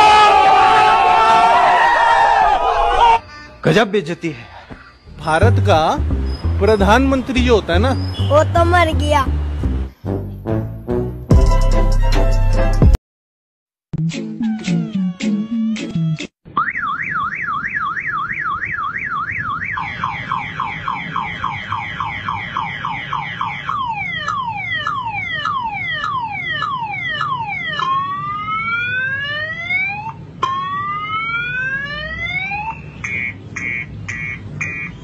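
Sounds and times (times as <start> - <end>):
motorcycle alarm siren: 16.5 - 35.0.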